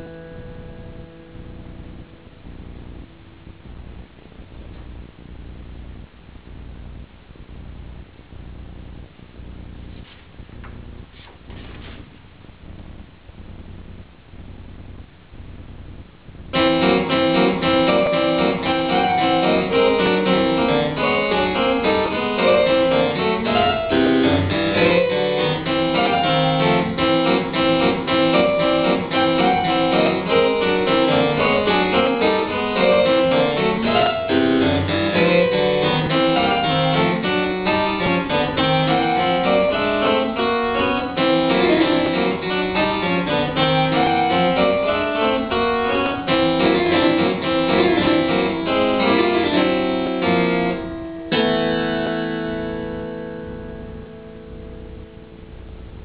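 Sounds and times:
harpsichord playing dance piece: 16.6s - 50.8s.

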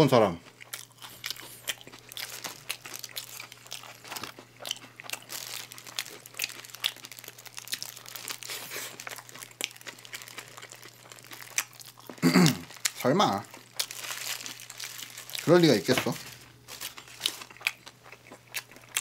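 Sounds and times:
person chewing burger: 0.4s - 15.5s, 16.2s - 19.0s
paper wrapper crinkling: 2.1s - 4.3s, 5.2s - 17.6s.

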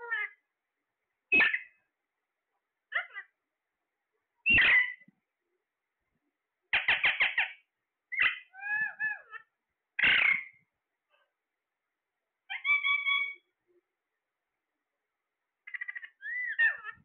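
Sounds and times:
parakeets calling: 1.3s - 1.8s, 4.5s - 5.0s, 6.7s - 10.6s, 12.5s - 13.5s, 15.7s - 17.0s.

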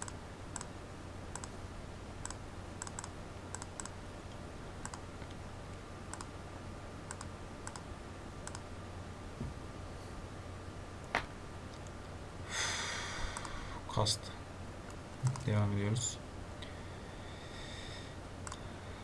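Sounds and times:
mouse clicks: 1.3s - 1.5s, 2.2s - 4.0s, 4.8s - 5.4s, 6.1s - 6.3s, 7.1s - 8.6s.

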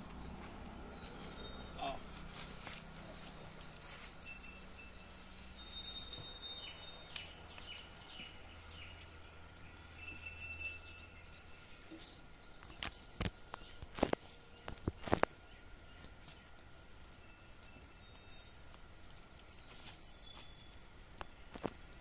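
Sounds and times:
small birds chirping: 0.0s - 10.0s, 11.0s - 16.6s.

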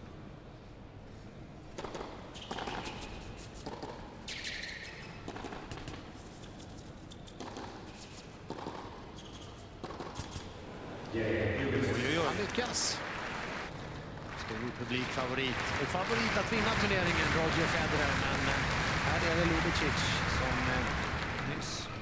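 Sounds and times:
tennis racket hitting ball: 1.7s - 6.0s, 7.3s - 9.1s, 9.8s - 10.4s.

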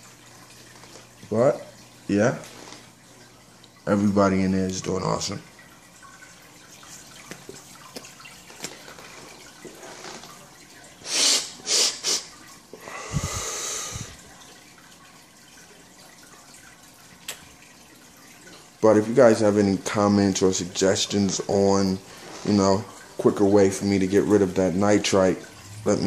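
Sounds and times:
aquarium water trickling: 0.0s - 26.0s
loud breathy bursts: 11.0s - 14.2s
long breath out: 12.8s - 14.2s.

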